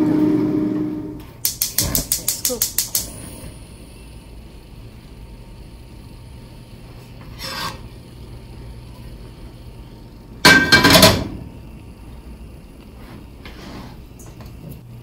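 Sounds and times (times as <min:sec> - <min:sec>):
pan scraping on metal grate: 0:07.3 - 0:07.8.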